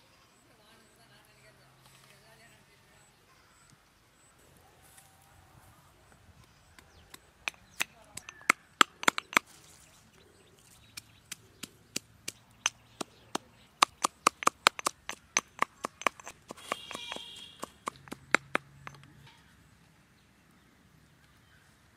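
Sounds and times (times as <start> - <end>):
sharp knocks: 7.4 - 9.4, 11.9 - 19.0.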